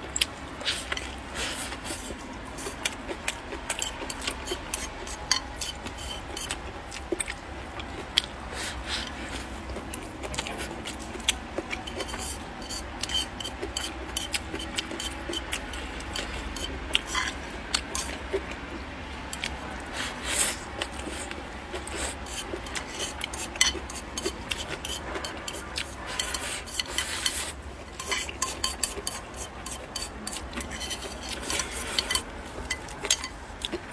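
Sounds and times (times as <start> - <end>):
chopsticks scraping a plate: 0.6 - 7.3, 7.9 - 18.7, 19.3 - 33.9
chopsticks tapping a plate: 3.7 - 6.6, 11.2 - 18.2, 21.7 - 33.8.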